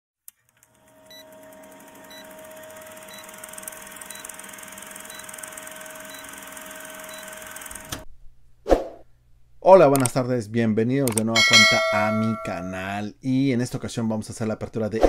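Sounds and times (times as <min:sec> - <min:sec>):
film projector whirring: 0:00.3 - 0:08.0.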